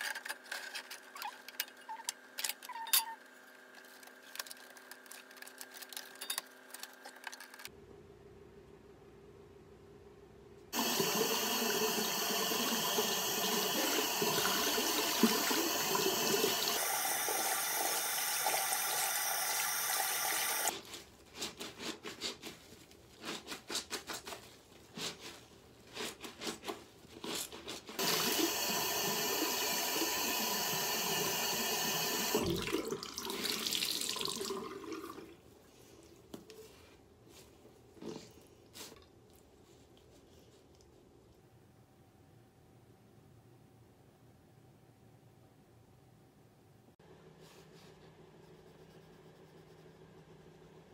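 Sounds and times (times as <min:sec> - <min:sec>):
faucet running into sink: 0:10.8 - 0:20.7, 0:28.0 - 0:35.3.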